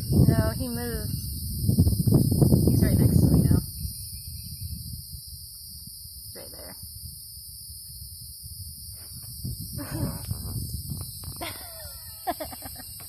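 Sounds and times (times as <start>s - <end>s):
insect chorus buzzing: 0.0s - 13.0s.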